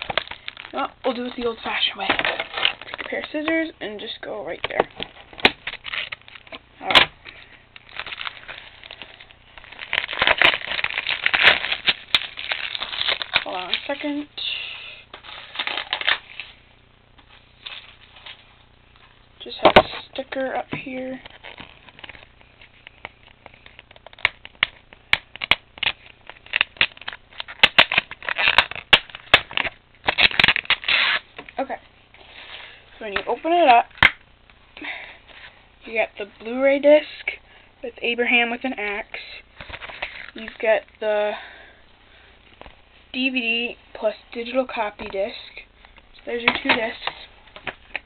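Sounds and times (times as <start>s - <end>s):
plastic wrap crinkling: 0.0s - 14.2s, 15.1s - 16.6s, 17.2s - 34.2s
sticker peeling crackles: 21.1s - 31.2s.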